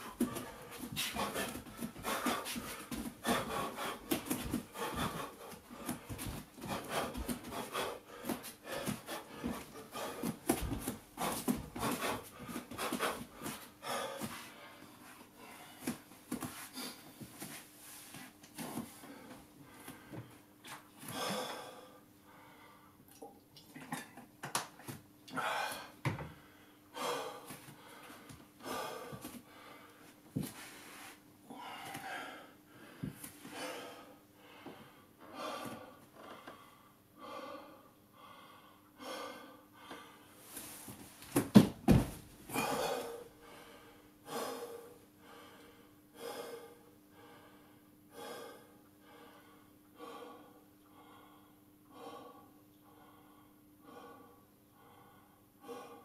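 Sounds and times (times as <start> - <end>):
man breathing hard: 0.0 - 17.1, 18.9 - 23.0, 25.3 - 40.8, 42.5 - 56.0.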